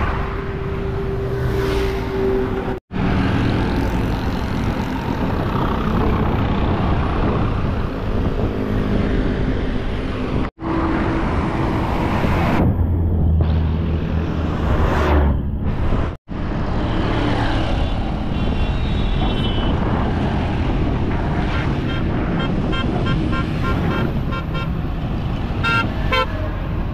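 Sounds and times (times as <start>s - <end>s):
road traffic engines: 0.0s - 26.9s
horn tooting rapidly: 25.6s - 26.4s.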